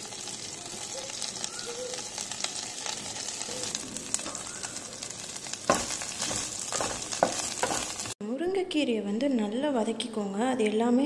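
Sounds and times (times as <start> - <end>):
leaves sizzling in a pan: 0.0 - 8.2
spatula knocking against pan: 5.7 - 7.9.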